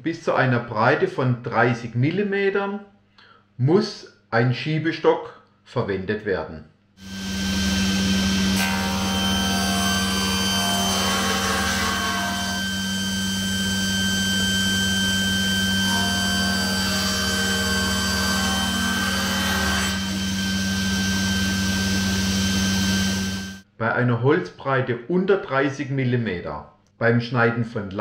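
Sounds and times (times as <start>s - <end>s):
table saw running: 7.0s - 23.6s.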